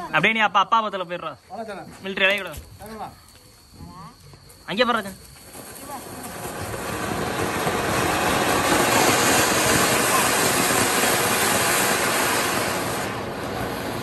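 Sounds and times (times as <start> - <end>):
firework fountain hissing: 4.7 - 14.0.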